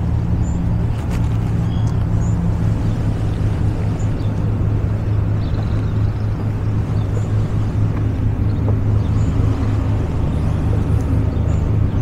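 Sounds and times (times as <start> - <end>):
engine rumble: 0.0 - 12.0.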